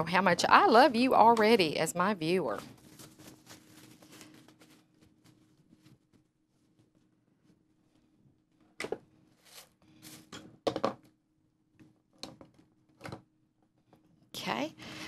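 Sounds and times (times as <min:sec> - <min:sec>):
paper towel crumpling: 0:02.7 - 0:07.1.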